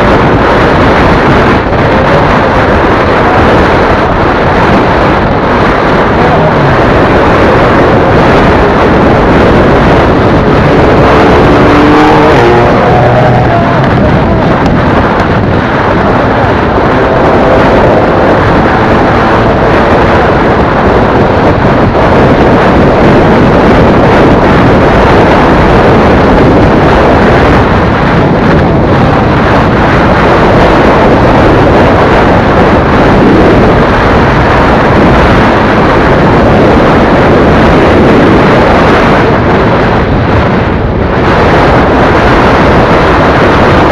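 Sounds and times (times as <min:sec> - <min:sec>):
motorcycle engine: 0:00.0 - 0:32.9
wind roaring over microphone: 0:00.0 - 0:43.9.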